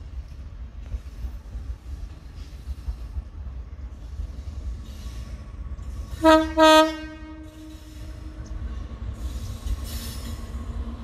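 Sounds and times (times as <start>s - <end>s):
train rumble: 0.0s - 11.0s
locomotive horn blasts: 6.2s - 7.6s.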